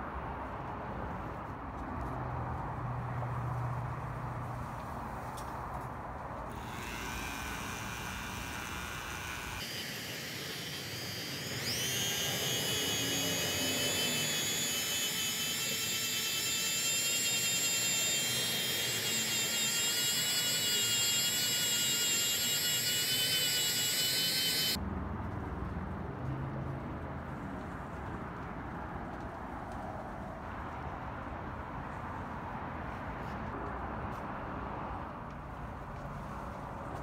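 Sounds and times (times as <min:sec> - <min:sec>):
rotary tool high whine: 0:06.5 - 0:24.8.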